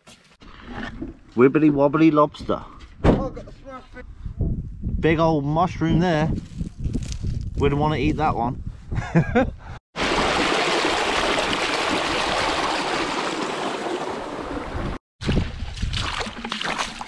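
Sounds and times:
water rushing over rocks: 0:10.0 - 0:15.0
boots splashing through shallow water: 0:15.2 - 0:17.0.

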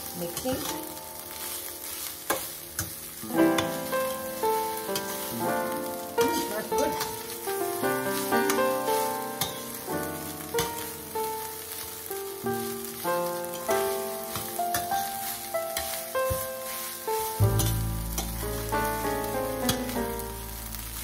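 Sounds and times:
background melody: 0:00.0 - 0:21.0
rice sizzling in a pan: 0:00.0 - 0:21.0
spatula scraping a pan: 0:04.9 - 0:05.3, 0:14.3 - 0:18.3.

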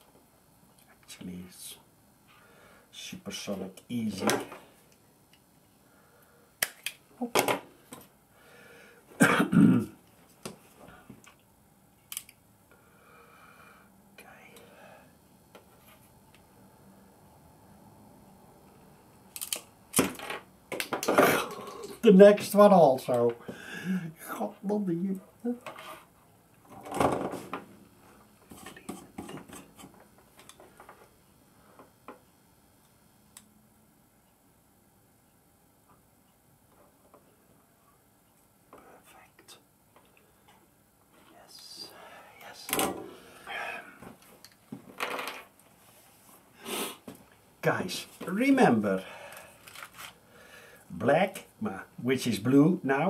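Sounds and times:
crimping pliers clicking: 0:19.3 - 0:20.1.

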